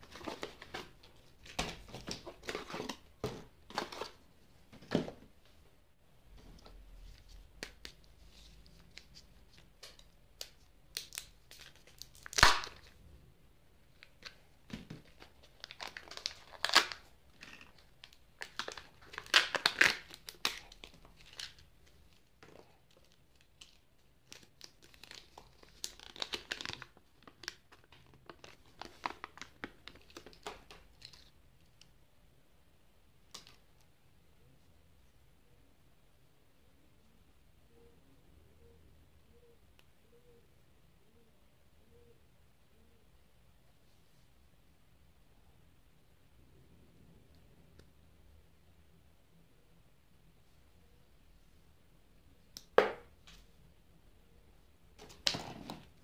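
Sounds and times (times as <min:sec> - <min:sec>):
foil wrapper tearing and crinkling: 0:11.0 - 0:12.9, 0:15.6 - 0:17.6, 0:18.4 - 0:21.6.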